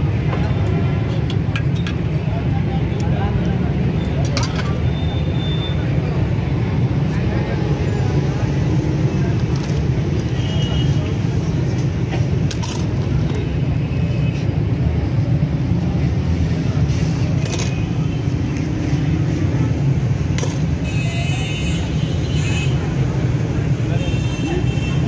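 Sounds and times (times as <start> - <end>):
street traffic rumble: 0.0 - 25.0
metal skewers clinking: 4.1 - 4.9, 12.5 - 13.4, 17.4 - 17.9, 20.4 - 20.8.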